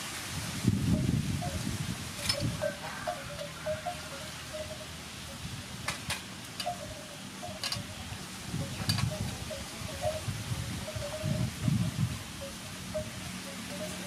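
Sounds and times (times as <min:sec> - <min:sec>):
metallic clinks on steel trays: 0:02.2 - 0:04.9, 0:05.8 - 0:14.0.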